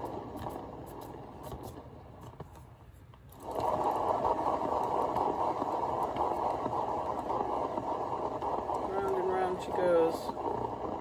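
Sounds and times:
spinner whirring: 3.3s - 11.0s.

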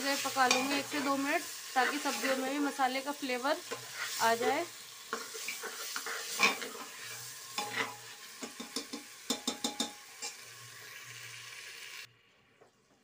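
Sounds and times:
vegetables sizzling in a pot: 0.0s - 13.0s
spoon scraping and knocking pot: 0.4s - 1.2s, 3.7s - 10.4s.

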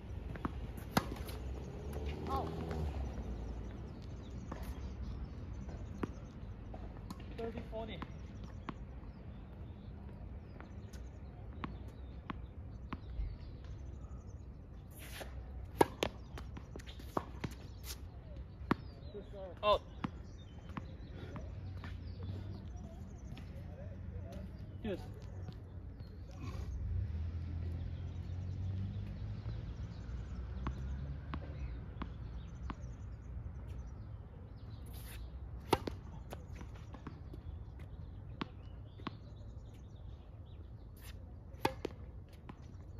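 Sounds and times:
tennis ball bouncing on court: 0.3s - 4.9s, 15.1s - 18.0s, 20.0s - 22.0s, 30.6s - 33.0s, 34.9s - 39.9s, 41.0s - 42.9s
racket striking ball: 35.6s - 36.2s, 41.6s - 42.0s.

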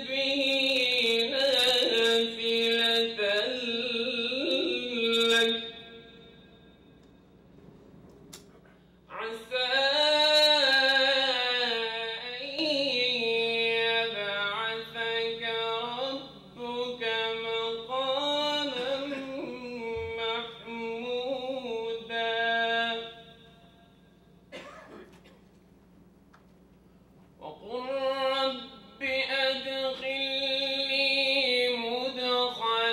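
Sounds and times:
man chanting into microphone: 0.0s - 6.4s, 9.1s - 23.5s, 27.4s - 32.9s.

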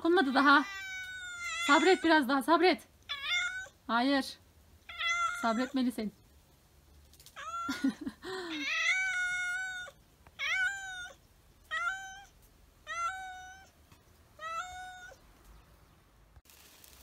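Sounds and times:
cat meowing: 0.4s - 2.2s, 3.1s - 3.8s, 4.9s - 5.8s, 7.4s - 7.7s, 8.5s - 13.8s, 14.4s - 15.2s.

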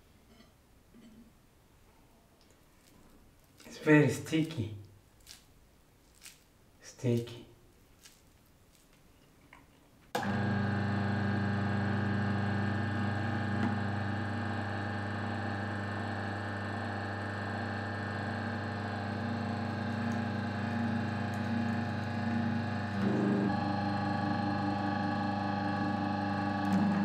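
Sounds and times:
juicer motor humming: 10.2s - 27.0s.

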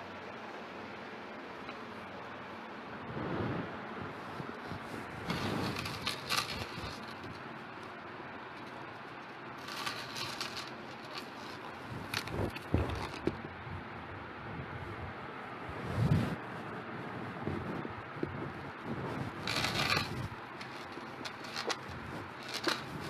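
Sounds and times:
handbags rustling: 4.4s - 7.5s, 9.5s - 13.4s, 19.3s - 23.0s.

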